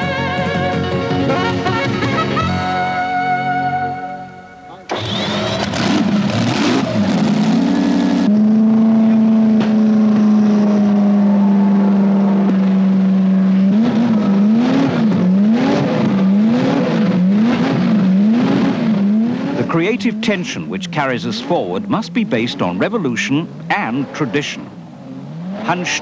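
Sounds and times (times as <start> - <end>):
racing car engine revving: 4.9 - 26.0.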